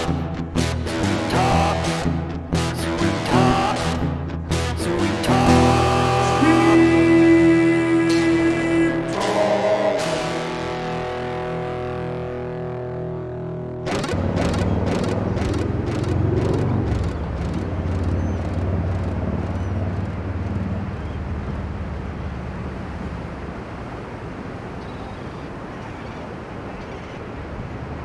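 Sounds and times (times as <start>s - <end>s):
surf washing ashore: 4.9s - 13.1s, 13.9s - 28.0s
fast ticking: 13.9s - 21.1s
wind rumbling on microphone: 14.2s - 28.0s.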